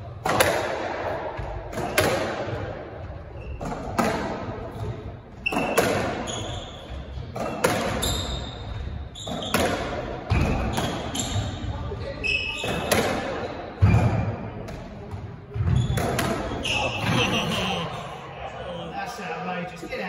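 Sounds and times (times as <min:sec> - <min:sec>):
squash ball cracks echoing: 0:00.2 - 0:02.8
shoes squeaking on wooden floor: 0:05.4 - 0:09.7.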